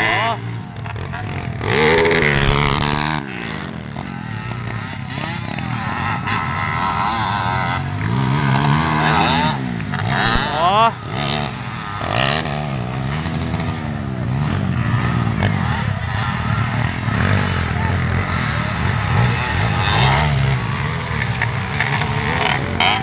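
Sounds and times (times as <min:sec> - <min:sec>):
dirt bike engines revving: 0:00.0 - 0:23.0.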